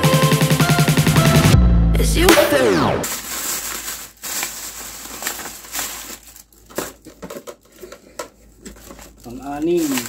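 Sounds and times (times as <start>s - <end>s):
plastic bag crinkling: 3.0s - 10.0s.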